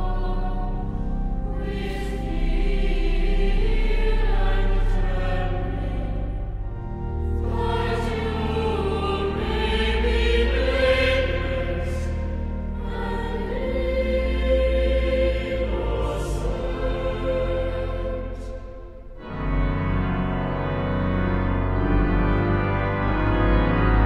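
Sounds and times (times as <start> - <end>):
choir singing: 0.0 - 24.0
low organ notes: 0.0 - 24.0.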